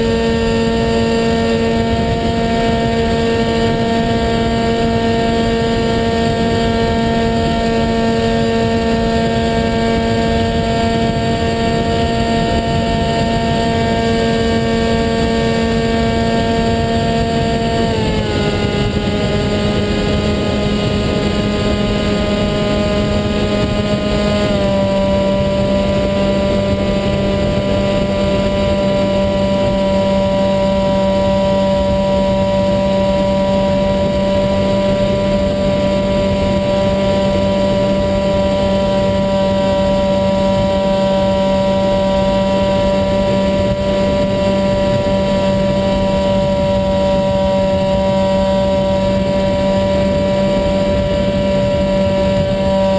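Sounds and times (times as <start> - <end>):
electric motor and propeller whining: 0.0 - 52.9.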